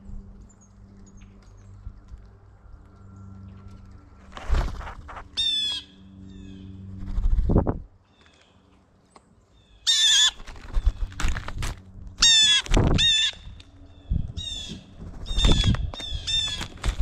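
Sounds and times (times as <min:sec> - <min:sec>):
woodpecker trilled churr call: 0:05.4 - 0:06.8, 0:09.6 - 0:10.4, 0:12.2 - 0:14.8
birds knocking on peanut pile: 0:10.1 - 0:11.8, 0:15.4 - 0:17.0.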